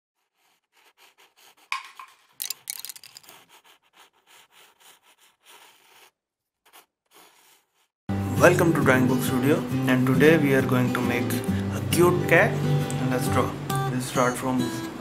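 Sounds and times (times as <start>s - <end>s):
pencil scratching on paper: 0.2s - 2.3s, 3.2s - 7.9s.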